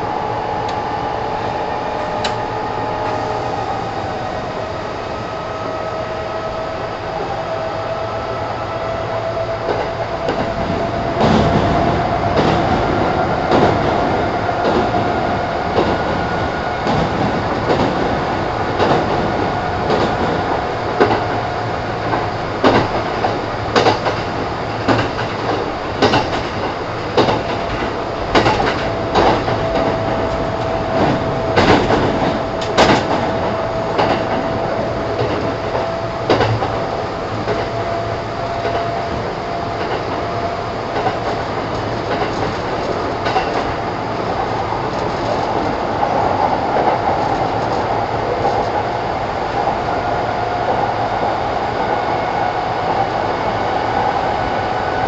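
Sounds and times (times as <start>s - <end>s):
train rumble: 0.0s - 55.0s
wheels clacking over rail joints: 22.0s - 38.0s
train motor whine: 24.8s - 48.6s.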